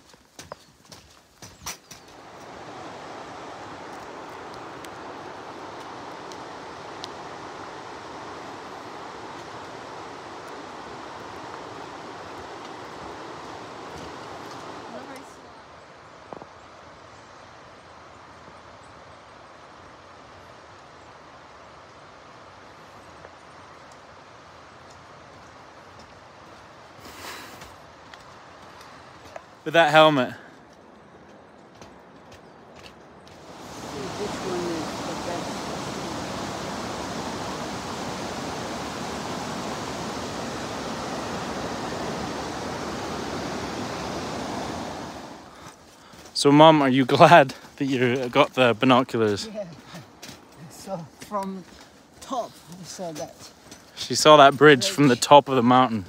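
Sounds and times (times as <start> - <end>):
river rushing: 2.0 - 30.5, 33.3 - 56.0.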